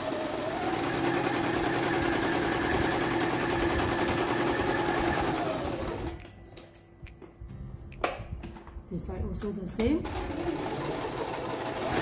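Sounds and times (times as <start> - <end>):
sewing machine running: 0.0 - 6.2, 10.0 - 12.0.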